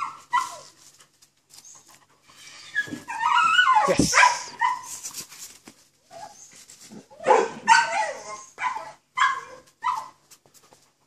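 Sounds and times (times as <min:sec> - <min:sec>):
dog barking and whining: 0:00.0 - 0:00.8, 0:02.5 - 0:05.0, 0:06.1 - 0:10.2.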